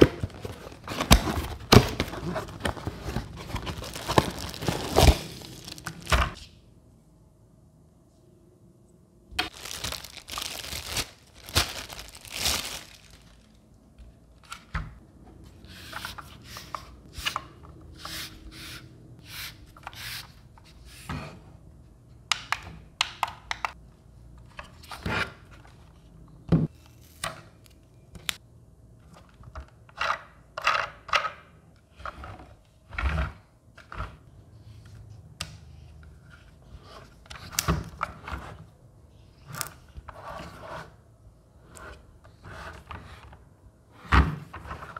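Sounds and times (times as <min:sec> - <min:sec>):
plastic bag crinkling and tearing: 0:01.9 - 0:06.1, 0:09.4 - 0:13.6.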